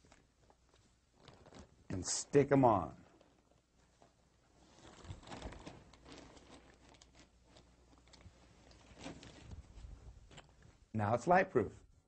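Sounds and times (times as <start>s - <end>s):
plastic sheeting crinkling: 0.0s - 10.9s
small crackles and taps: 10.3s - 10.8s.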